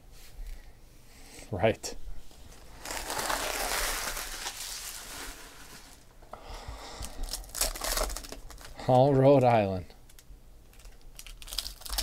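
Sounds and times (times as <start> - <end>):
foil wrappers crinkling: 2.5 - 6.1, 7.0 - 8.8, 10.0 - 12.0.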